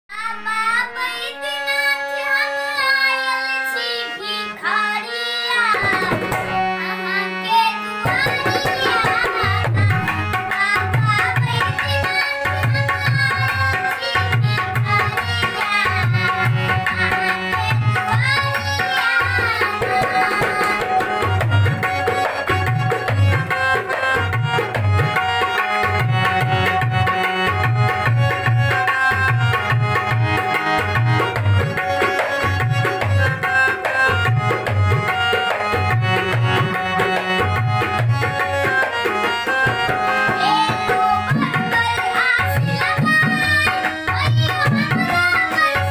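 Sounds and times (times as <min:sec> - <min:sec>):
person singing: 0:00.1 - 0:23.6, 0:40.1 - 0:45.9
harmonium: 0:00.1 - 0:45.9
hand drum beating rhythm: 0:08.1 - 0:13.6, 0:19.0 - 0:45.7.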